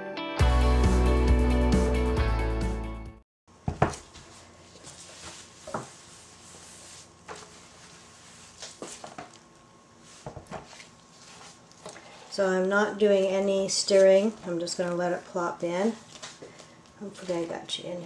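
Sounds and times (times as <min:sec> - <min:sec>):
background music: 0:00.0 - 0:03.2.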